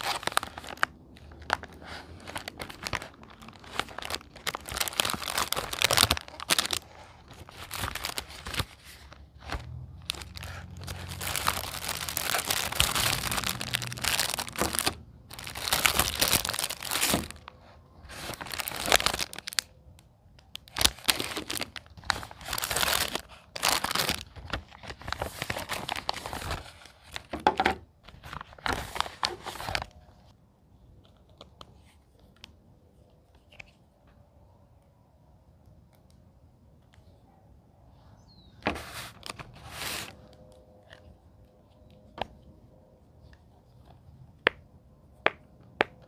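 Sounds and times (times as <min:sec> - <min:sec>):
packaging crinkling and tearing: 0:00.0 - 0:30.3, 0:38.9 - 0:42.2.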